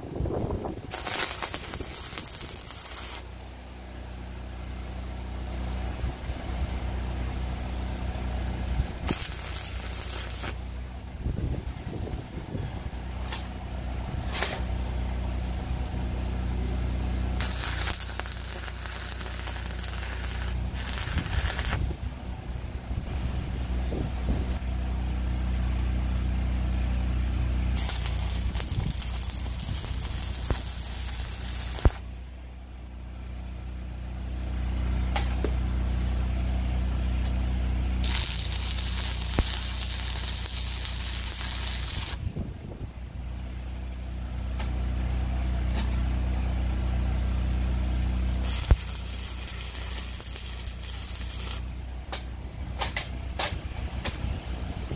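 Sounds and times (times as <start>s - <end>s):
steady low hum: 0.0s - 54.9s
arc welding: 0.9s - 3.4s, 9.0s - 10.7s, 17.4s - 21.8s, 27.7s - 32.1s, 38.0s - 42.2s, 48.4s - 51.8s.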